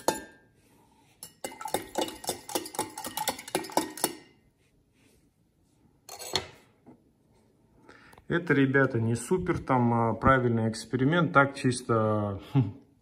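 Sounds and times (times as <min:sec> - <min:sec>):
spoon clinking in a glass: 0:00.0 - 0:00.4, 0:01.2 - 0:04.4.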